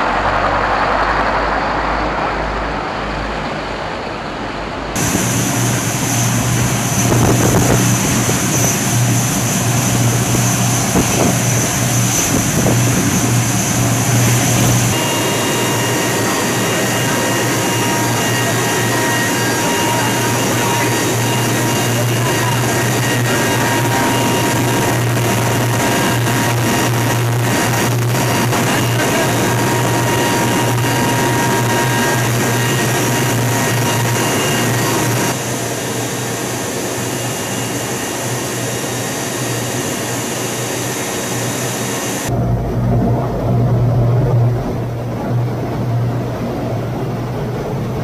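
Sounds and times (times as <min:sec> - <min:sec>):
aircraft engines droning: 0:00.0 - 0:48.0.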